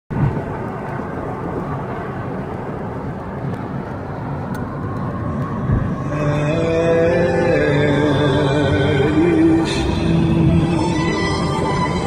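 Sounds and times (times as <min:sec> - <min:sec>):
car engine drone: 0:00.1 - 0:12.0
road and wind noise: 0:00.1 - 0:12.0.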